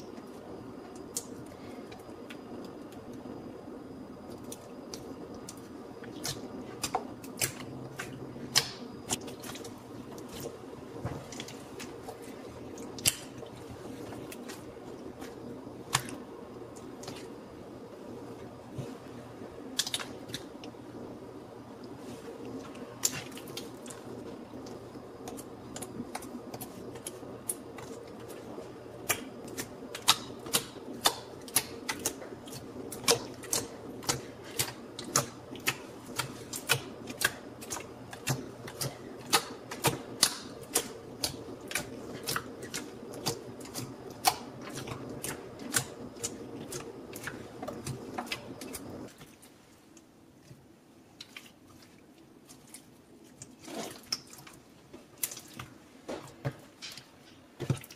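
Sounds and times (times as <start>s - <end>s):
slime squishing with popping clicks: 29.0s - 48.9s.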